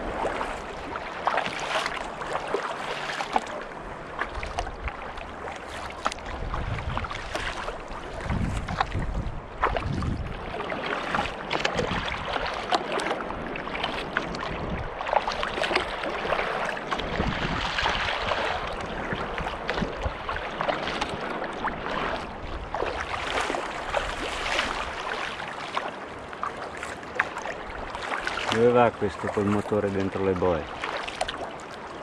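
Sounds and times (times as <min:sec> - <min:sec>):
wind rumbling on microphone: 0:00.0 - 0:02.6, 0:03.3 - 0:25.4
water splashing around kayak: 0:00.0 - 0:32.0.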